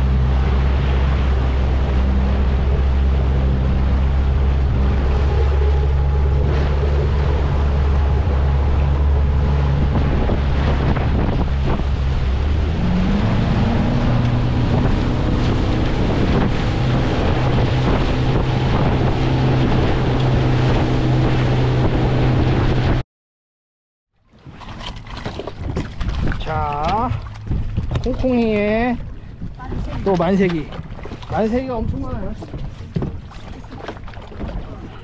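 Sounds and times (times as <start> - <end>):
boat engine running: 0.0 - 23.0, 24.2 - 35.0
water rushing past hull: 0.0 - 23.0, 24.2 - 35.0
wind on microphone: 0.0 - 23.0, 24.5 - 35.0.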